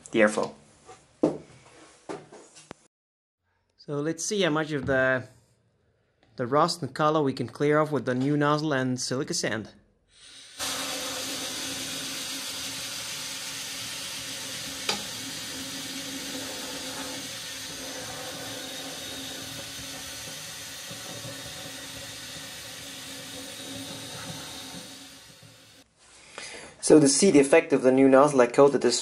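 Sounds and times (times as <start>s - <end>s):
sandblasting air hiss: 10.2s - 25.8s.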